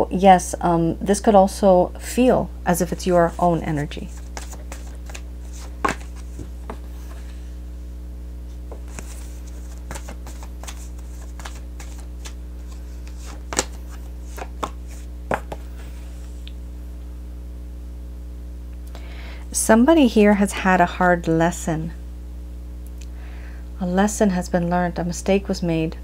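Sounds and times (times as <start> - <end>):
steady low hum: 0.0 - 26.0
cards tapping and snapping: 4.1 - 6.8, 8.7 - 15.7.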